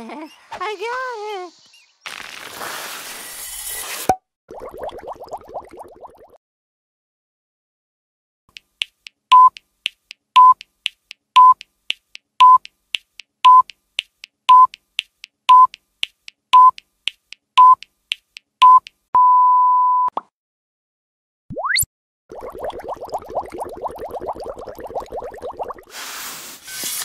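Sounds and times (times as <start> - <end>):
short electronic beeps: 9.3 - 9.6, 10.4 - 10.6, 11.4 - 11.6, 12.4 - 12.6, 13.4 - 13.7, 14.5 - 14.7, 15.5 - 15.7, 16.6 - 16.8, 17.6 - 17.8.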